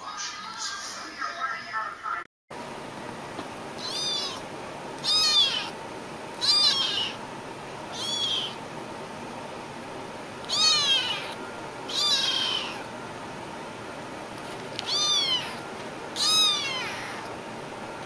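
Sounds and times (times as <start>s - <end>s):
kitten meowing: 3.8s - 4.4s, 5.0s - 5.8s, 6.4s - 7.2s, 7.9s - 8.6s, 10.4s - 12.9s, 14.8s - 15.6s, 16.2s - 17.3s.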